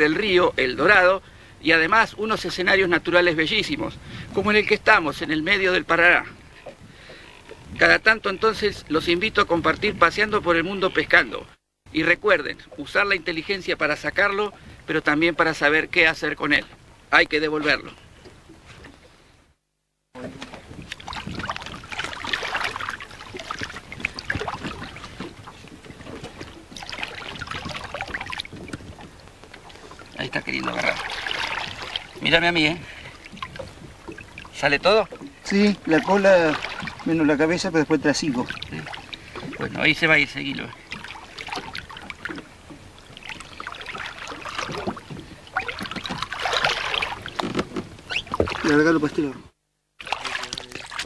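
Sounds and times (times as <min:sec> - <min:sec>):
river water splashing: 0:20.2 - 0:49.1, 0:50.0 - 0:51.0.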